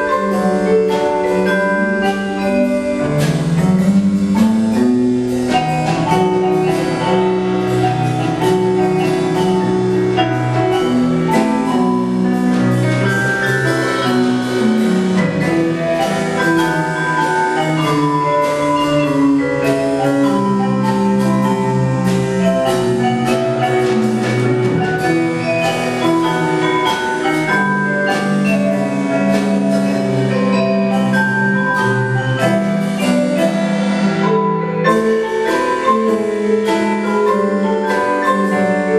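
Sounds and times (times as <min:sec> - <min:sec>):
vibraphone and marimba tune: 0:00.0 - 0:38.9.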